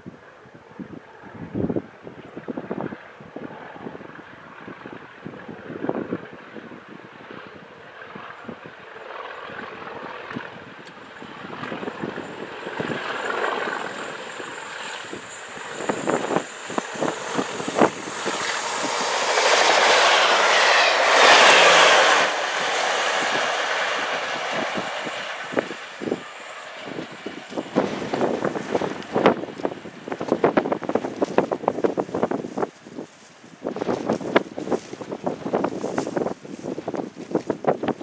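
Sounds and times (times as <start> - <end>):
train wheels rushing on rails: 10.9 - 32.8.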